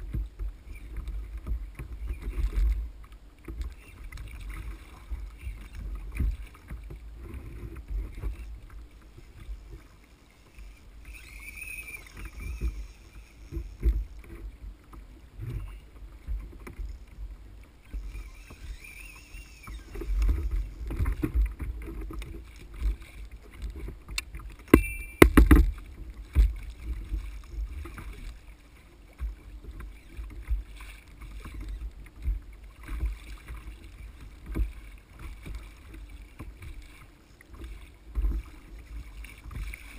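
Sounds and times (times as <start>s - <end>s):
water slapping against kayak hull: 0.0s - 10.0s, 19.8s - 39.9s
sharp knocks: 24.7s - 25.7s.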